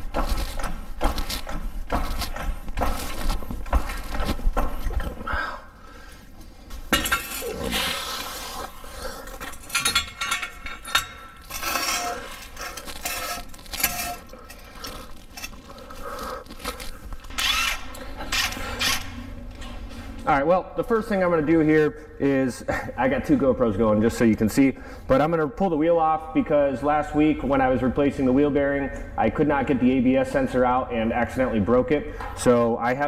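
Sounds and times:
hydraulic jack pumping: 0.0s - 5.1s, 16.6s - 19.2s.

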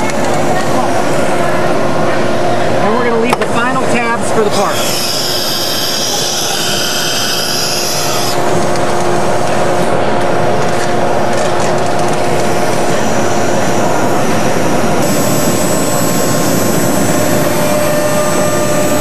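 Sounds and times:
cnc router spindle whine: 0.0s - 19.0s
machining noise: 0.0s - 19.0s
high hissing: 4.7s - 8.4s.

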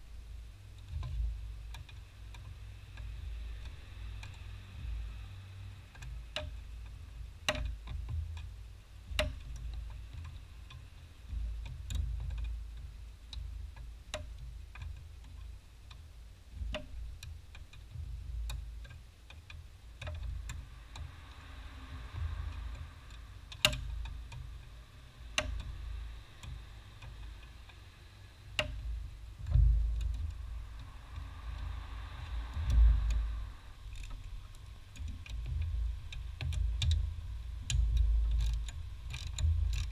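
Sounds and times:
low rumble: 19.8s - 39.9s.

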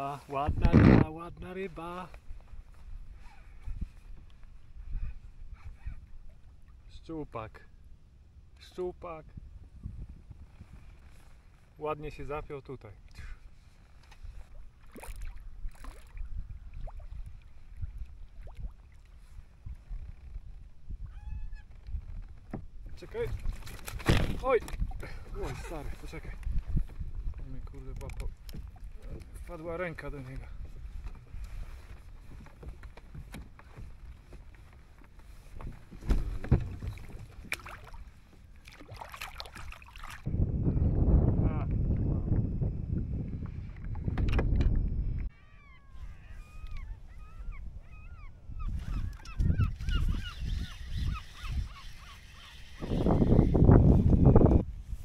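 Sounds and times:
water lapping against plastic hull: 13.0s - 20.4s, 21.7s - 40.3s
light water splashing: 14.0s - 19.6s, 35.6s - 40.3s.

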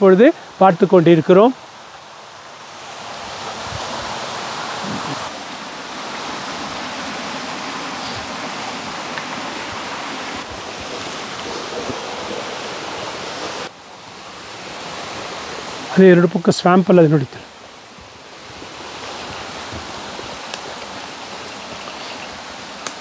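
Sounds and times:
stream flowing: 0.0s - 23.0s.

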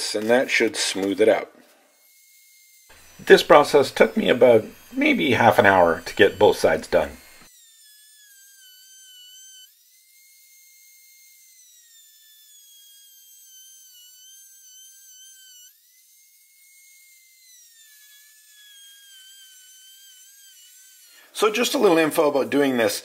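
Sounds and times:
rotary tool sanding steel: 0.0s - 23.0s.

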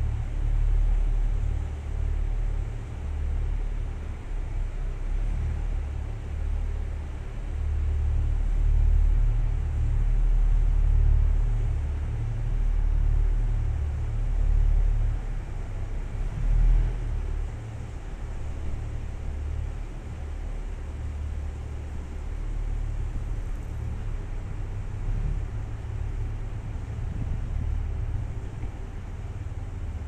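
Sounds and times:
train rumbling: 10.4s - 30.0s.

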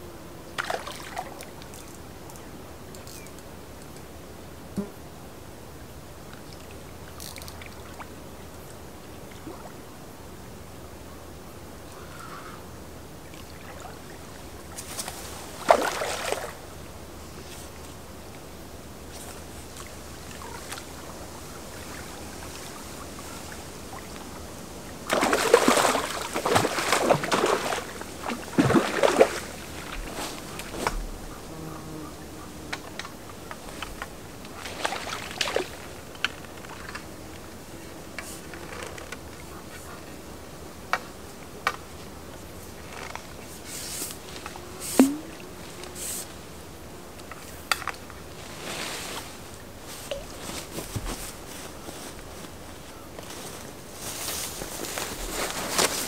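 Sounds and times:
flowing river hiss: 0.0s - 56.0s
river current washing: 13.1s - 31.5s, 32.9s - 37.6s, 42.7s - 46.9s
fish splashing at surface: 25.1s - 30.0s, 44.9s - 45.4s.

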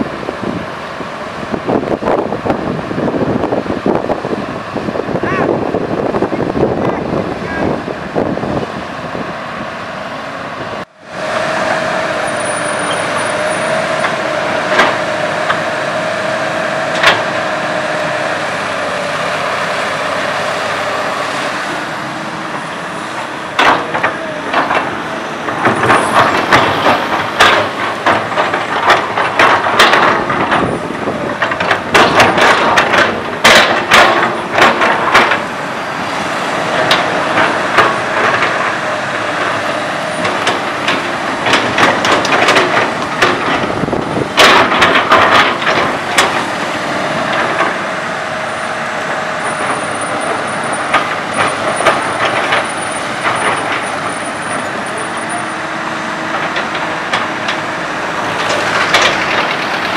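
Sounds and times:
diesel engine running: 0.0s - 59.9s
excavator bucket clanking on soil: 23.5s - 35.6s, 36.6s - 48.1s, 49.4s - 59.9s.

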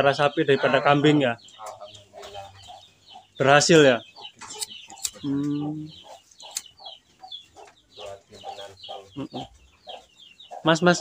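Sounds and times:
chickens clucking: 0.0s - 11.0s.

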